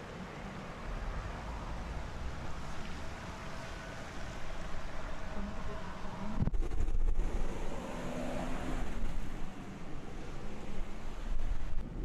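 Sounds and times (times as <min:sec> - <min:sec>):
gusty wind buffeting microphone: 0:04.1 - 0:12.0.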